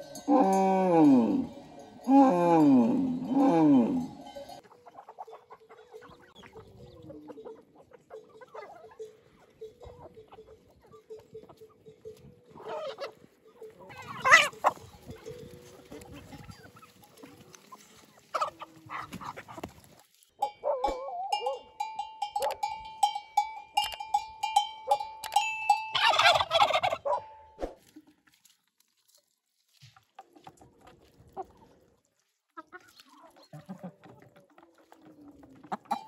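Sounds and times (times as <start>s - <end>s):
turkeys gobbling: 0.0s - 11.9s, 12.5s - 21.6s, 25.9s - 27.8s, 32.6s - 36.0s.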